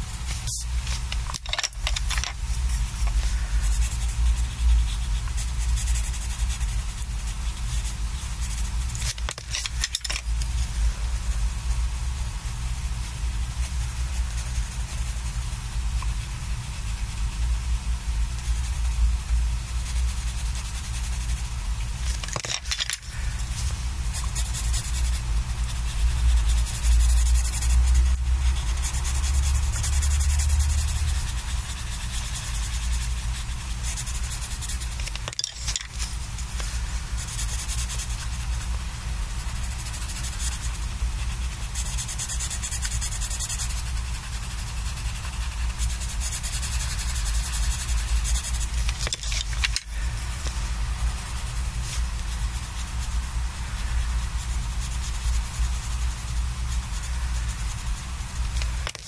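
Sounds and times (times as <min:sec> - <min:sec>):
coloured pencil scratching on paper: 0:00.0 - 0:59.0.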